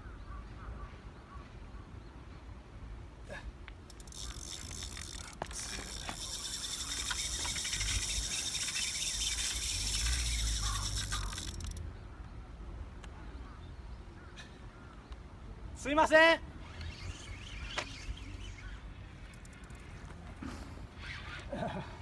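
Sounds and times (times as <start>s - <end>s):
fishing reel whirring: 3.9s - 11.8s, 16.6s - 20.0s.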